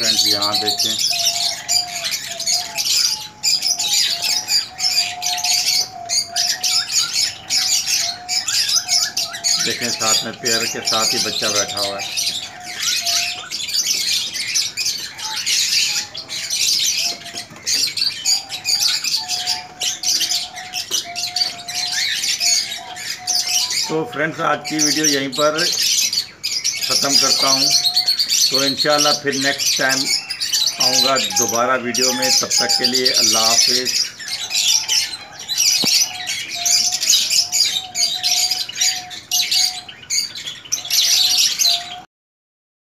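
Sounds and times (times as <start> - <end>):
small birds chirping: 0.0 - 42.1.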